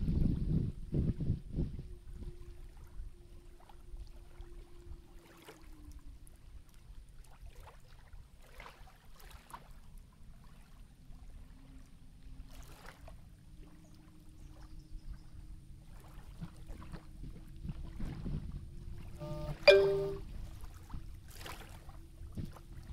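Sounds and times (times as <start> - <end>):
wind rumble on microphone: 0.0 - 19.3, 20.1 - 22.9
lake water splashing: 2.4 - 10.7, 15.8 - 18.2, 19.0 - 22.9
faint steady hum: 18.7 - 20.4.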